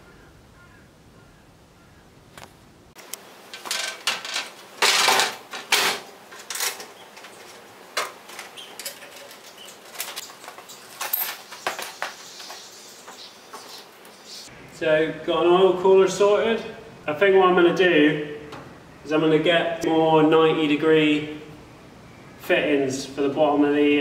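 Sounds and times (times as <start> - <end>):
rustling and shuffling: 2.3 - 14.5.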